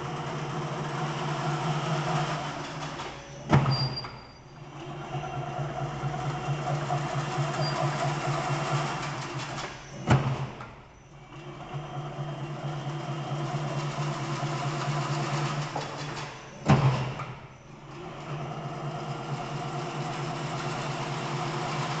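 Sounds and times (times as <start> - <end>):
weaving machine motor hum: 0.0 - 3.7, 4.6 - 22.0
rhythmic mechanical clatter: 4.6 - 22.0.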